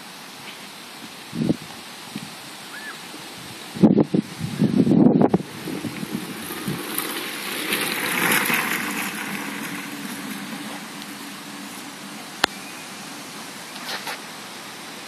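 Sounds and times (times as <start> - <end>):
wind buffeting microphone: 1.3 - 2.5, 3.3 - 13.5
bike tyres rolling over gravel: 3.1 - 15.0.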